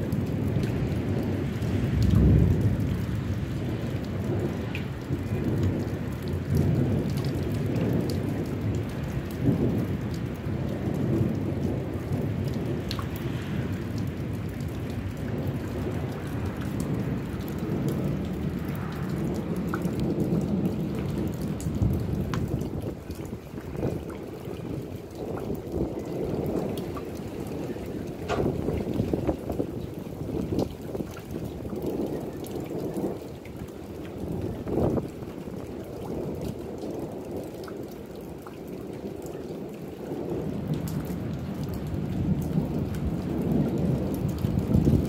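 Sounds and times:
raindrops ticking: 0.0s - 45.0s
steady rain: 0.0s - 45.0s
thunder rumbling: 0.0s - 45.0s.

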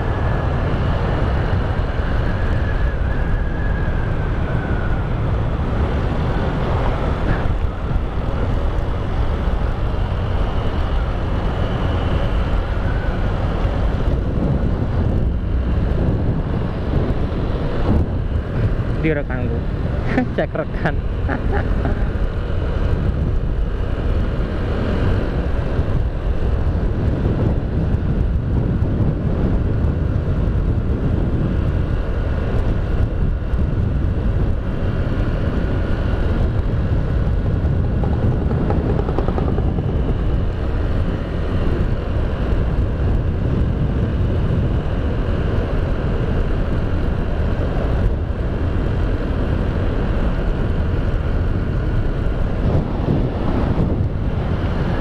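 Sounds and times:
wind rumbling on microphone: 0.0s - 55.0s
scooter engine: 34.4s - 43.6s.

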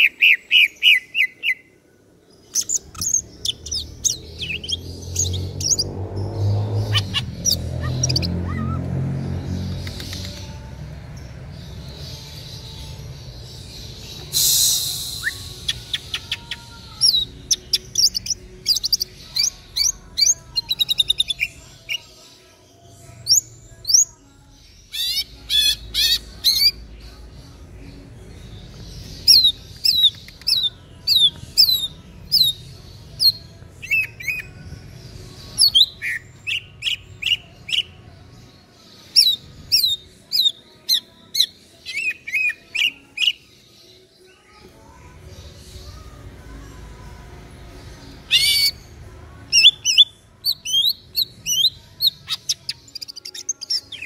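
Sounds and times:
bird singing whistled notes: 2.5s - 5.9s, 13.6s - 21.5s, 29.2s - 32.6s, 39.1s - 43.4s.

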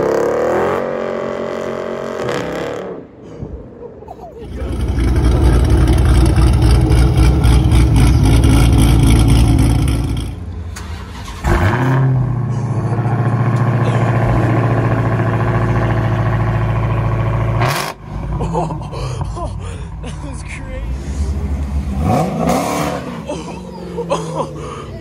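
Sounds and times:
loud car engine running: 4.4s - 24.9s
engine cranking and idling: 4.5s - 11.8s.

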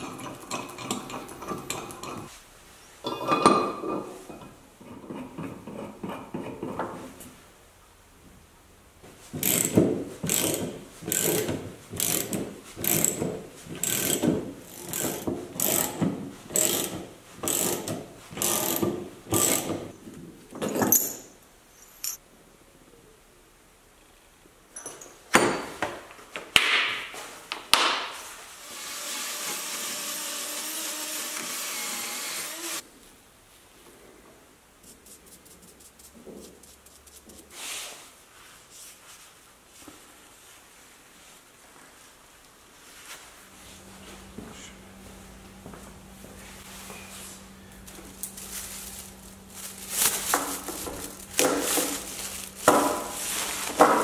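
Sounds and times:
ratchet wrench strokes: 9.4s - 13.2s, 13.8s - 16.0s, 16.6s - 19.8s
drill spinning wire brush on steel: 9.4s - 19.9s, 28.6s - 32.8s.

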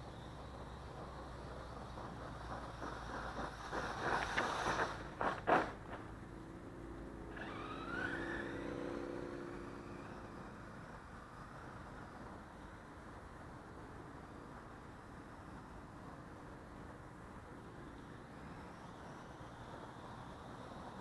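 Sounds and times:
electric motor whine: 0.0s - 12.8s.

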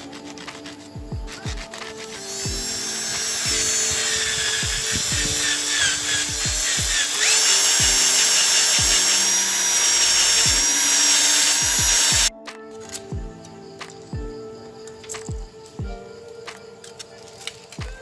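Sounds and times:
background music with beat: 0.0s - 8.2s, 8.8s - 9.3s, 10.3s - 18.0s
power drill wire brush scraping: 0.0s - 12.3s.

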